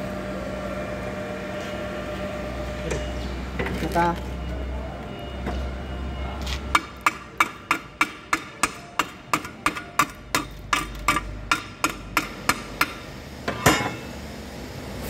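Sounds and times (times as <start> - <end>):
steel knocking on steel block: 6.8 - 14.1.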